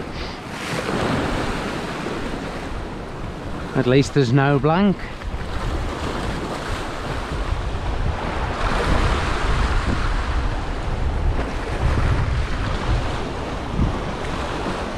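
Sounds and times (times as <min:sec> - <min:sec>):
sea swell washing against rocks: 0:00.0 - 0:14.9
wind buffeting microphone: 0:04.6 - 0:14.9.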